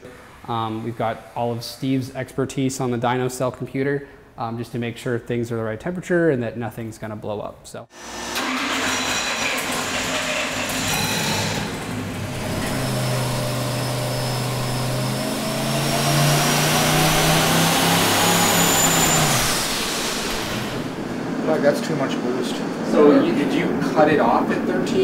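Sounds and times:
engine revving under load: 8.2s - 24.7s
turbo whistle: 12.5s - 20.4s.

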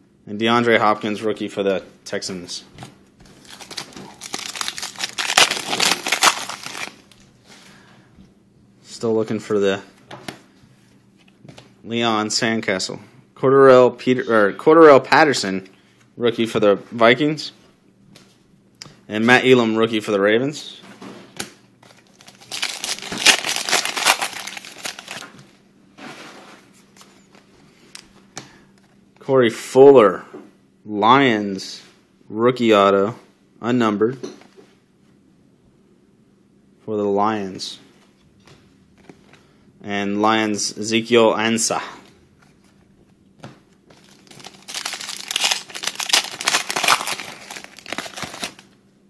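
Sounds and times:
trading cards shuffling rustle: 3.2s - 7.7s, 21.8s - 25.5s, 43.9s - 48.7s
foil wrapper crinkling and tearing: 3.4s - 7.2s, 21.9s - 25.3s, 44.0s - 48.7s.

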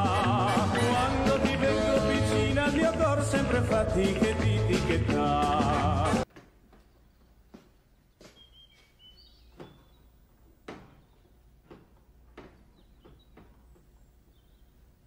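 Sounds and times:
footsteps on wooden floor: 6.3s - 14.5s.

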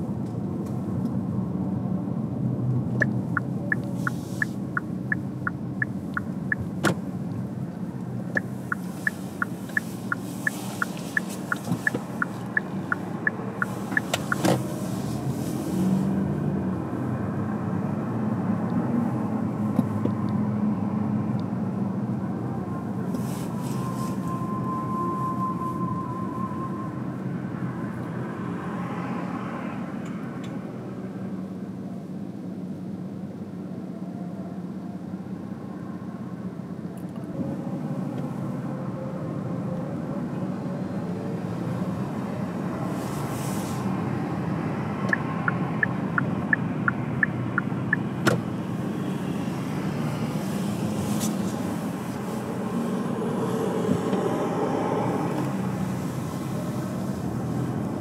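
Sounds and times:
car engine and tyre rumble: 0.0s - 58.0s
quick evenly spaced ticks: 3.0s - 6.6s, 8.3s - 14.4s.

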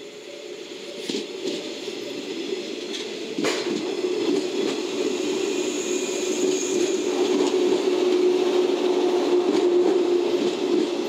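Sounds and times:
electric train passing: 0.0s - 11.0s
sharp clack: 3.4s - 3.9s.

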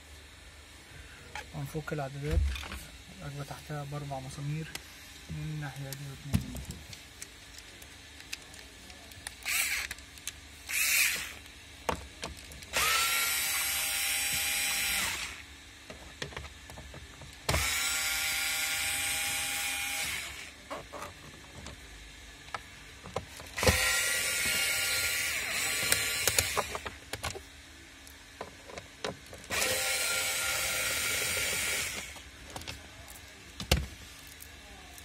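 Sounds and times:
electric screwdriver whining: 9.4s - 10.0s, 10.7s - 11.5s, 12.7s - 15.5s, 17.4s - 20.9s, 23.5s - 27.4s, 29.4s - 32.2s.

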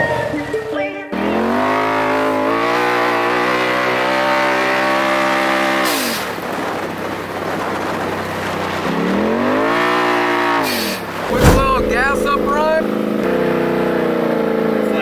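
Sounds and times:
engine revving at high revs: 1.2s - 6.3s, 8.9s - 11.2s.

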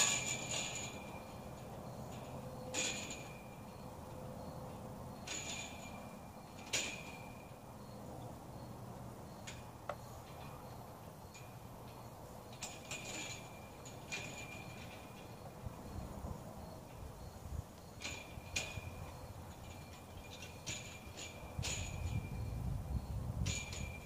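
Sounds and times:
metal tubing clanking: 0.0s - 3.8s.

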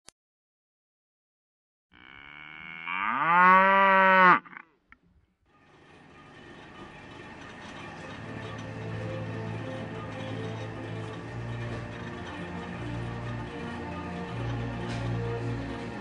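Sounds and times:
bull mooing: 1.9s - 4.8s.

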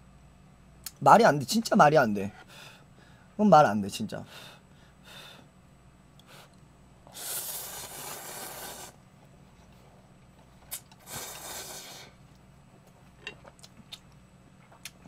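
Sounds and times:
slurping noodles: 7.1s - 9.0s, 11.0s - 12.1s.

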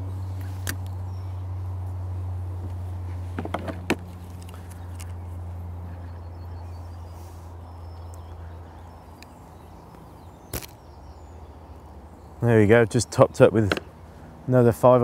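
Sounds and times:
steady low hum: 0.0s - 15.0s
bait catapult snap: 10.5s - 10.8s.

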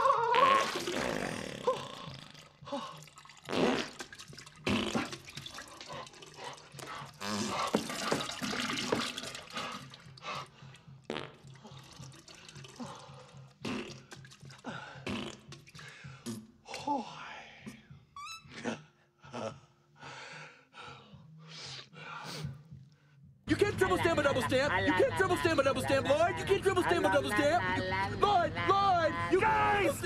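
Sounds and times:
toilet gurgling and splashing: 0.2s - 10.4s, 11.4s - 13.2s.

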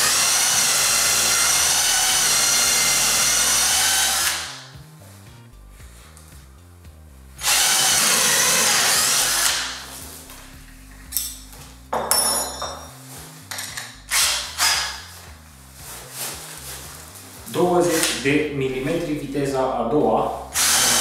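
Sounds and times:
cordless drill boring into wood: 0.0s - 4.7s, 7.4s - 9.9s, 14.1s - 15.0s, 20.5s - 21.0s.

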